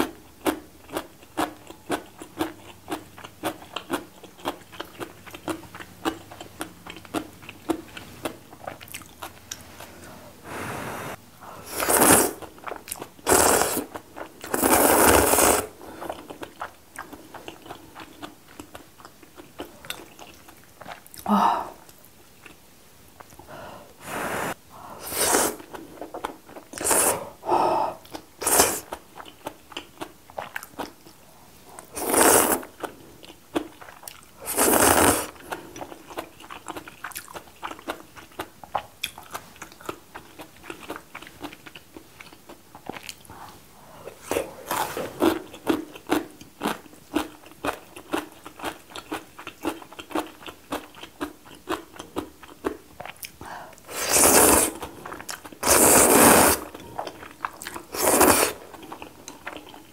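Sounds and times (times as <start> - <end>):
wet chewing with crunches: 0.0 - 10.0, 12.3 - 21.3, 28.1 - 59.9
noodles being slurped: 9.5 - 12.5, 13.3 - 15.8, 24.0 - 25.8, 31.8 - 32.8, 34.4 - 35.4, 53.9 - 54.9, 55.6 - 56.8, 57.5 - 59.2.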